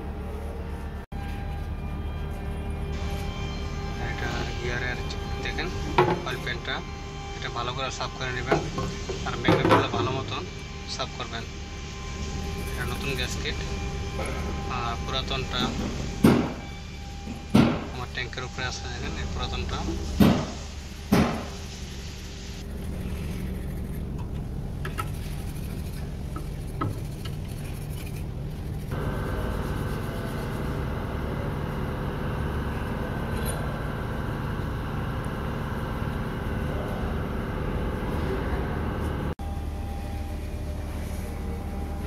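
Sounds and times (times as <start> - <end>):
low machinery hum: 0.0 - 42.0.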